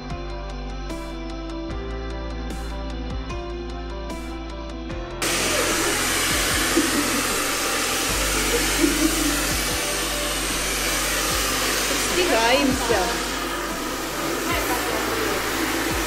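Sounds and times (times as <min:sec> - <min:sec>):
hair dryer blowing: 0:05.2 - 0:16.0.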